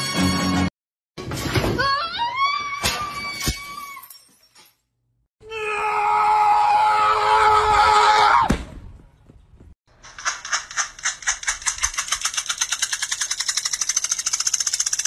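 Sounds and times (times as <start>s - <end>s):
thump: 8.5s - 8.9s
wing flaps: 10.0s - 15.0s.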